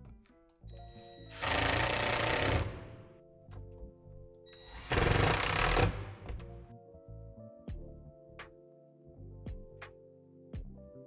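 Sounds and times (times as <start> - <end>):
quiet background music: 0.0 - 11.0
impact driver hammering screw: 1.3 - 3.0, 4.7 - 6.4.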